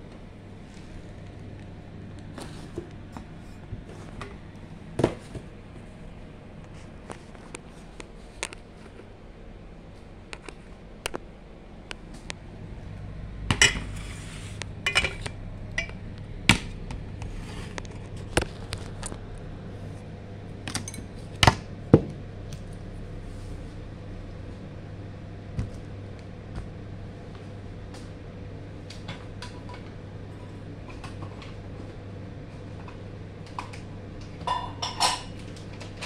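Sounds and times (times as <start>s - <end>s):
steady low hum: 0.0s - 36.0s
dishes and utensils clinking: 14.8s - 16.0s, 34.4s - 35.5s.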